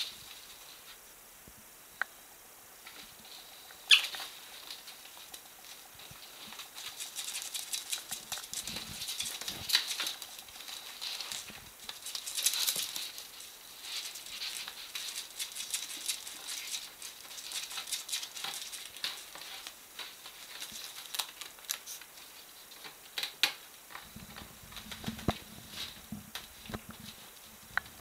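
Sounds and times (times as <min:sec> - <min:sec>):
animals scratching at tape: 0:03.9 - 0:22.4.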